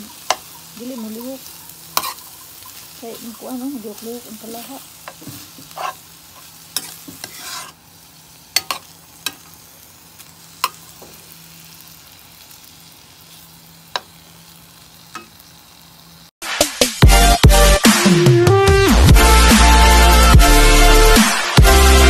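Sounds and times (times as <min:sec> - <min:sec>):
meat sizzling in a frying pan: 0:00.0 - 0:16.3
metal spoon stirring: 0:00.1 - 0:04.0, 0:04.9 - 0:07.8, 0:08.5 - 0:09.5
electronic music: 0:16.4 - 0:22.0.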